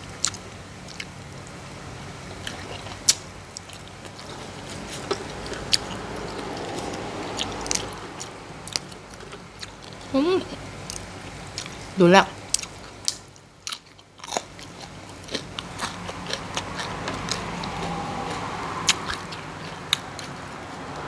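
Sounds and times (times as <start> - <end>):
person chewing and crunching: 0.2 - 1.1, 2.4 - 10.1, 10.8 - 20.5
low hum: 1.3 - 12.0.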